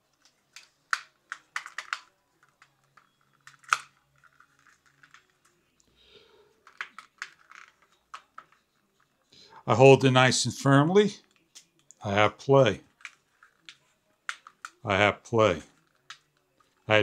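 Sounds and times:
plastic clicks and taps of toy drone arms: 0.2s - 2.6s.

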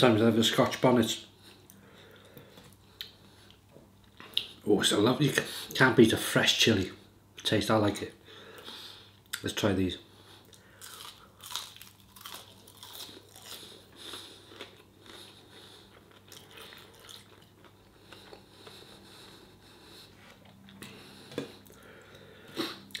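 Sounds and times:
person chewing crunchy food: 10.5s - 23.0s.

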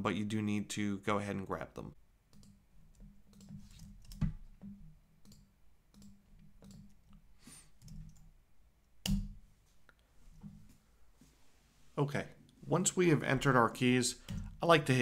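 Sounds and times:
computer keyboard clicks: 2.3s - 4.3s, 5.2s - 7.2s.

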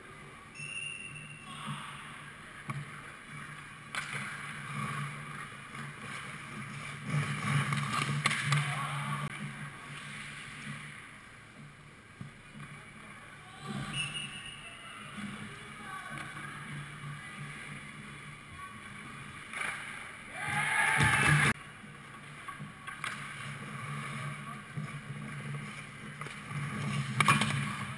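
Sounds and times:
skate blades scraping ice: 3.4s - 11.1s, 19.0s - 27.9s.

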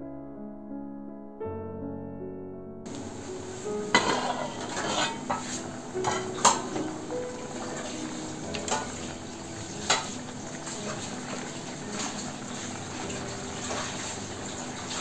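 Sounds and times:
metal pot lid clanking: 2.9s - 12.4s
fruit bubbling in boiling pot: 2.9s - 15.0s.

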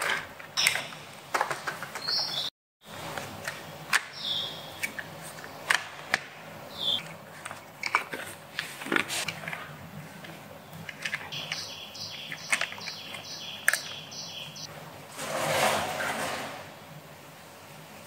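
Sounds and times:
high chirps: 6.7s - 7.0s, 11.3s - 14.7s
rough noise: 15.0s - 16.8s.

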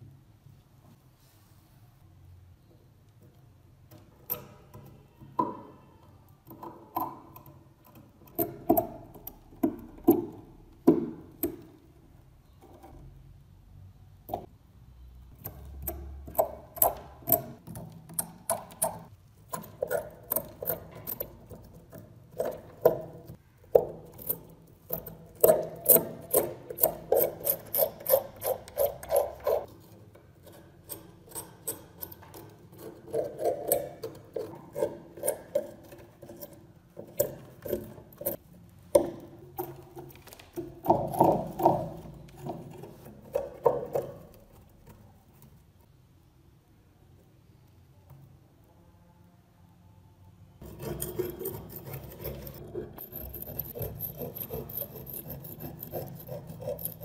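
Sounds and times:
metal pick scraping a knife blade: 24.1s - 38.4s, 50.6s - 57.0s.

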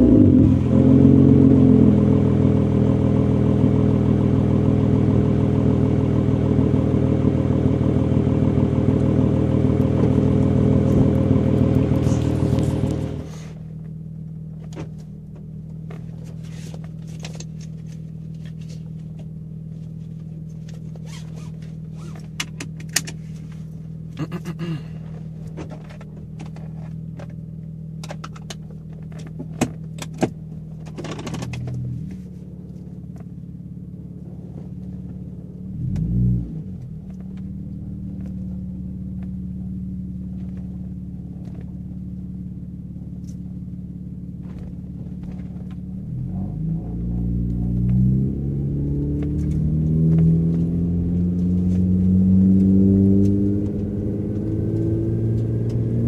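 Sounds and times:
engine rev: 0.0s - 13.7s, 30.9s - 56.0s
car engine idling: 0.0s - 56.0s.

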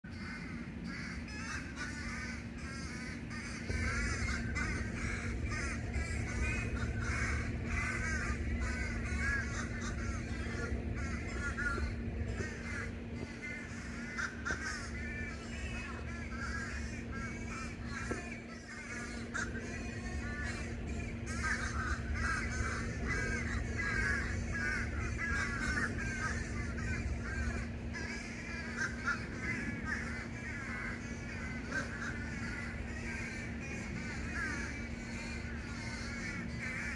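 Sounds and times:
flock of birds calling: 0.1s - 36.9s
low hum: 0.1s - 36.9s
low rumble: 1.9s - 18.1s.

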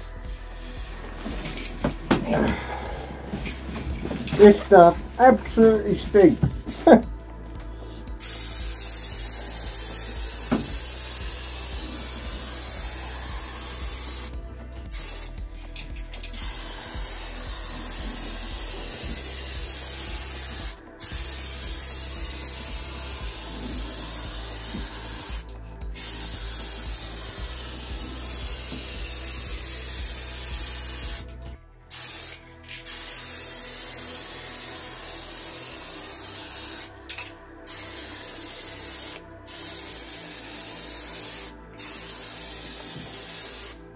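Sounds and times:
paint spray hissing: 8.1s - 31.3s, 31.9s - 36.9s, 37.6s - 43.8s.

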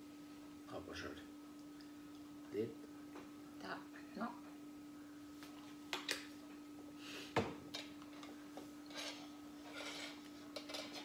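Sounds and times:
steady low hum: 0.0s - 11.0s
tableware clicking and knocking: 8.9s - 11.0s.

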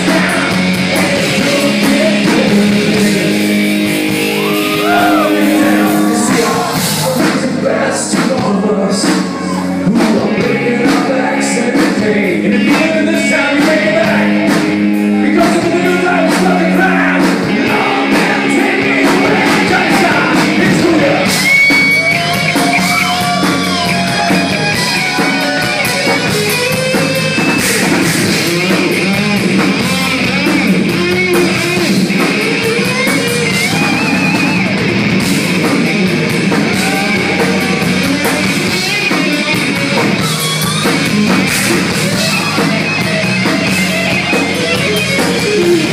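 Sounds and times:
person singing: 0.0s - 3.7s, 4.3s - 26.4s
live rock band playing: 0.0s - 45.9s.

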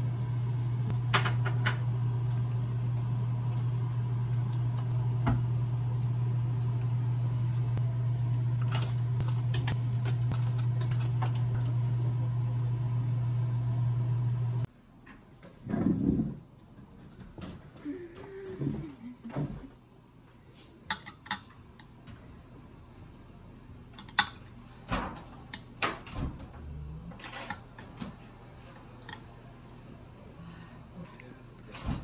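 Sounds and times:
low mechanical hum: 0.0s - 32.0s.

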